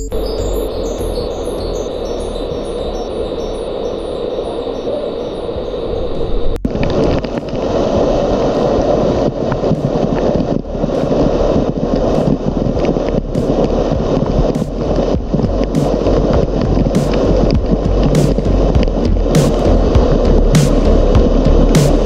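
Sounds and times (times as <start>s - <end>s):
waterfall rushing: 6.7s - 22.0s.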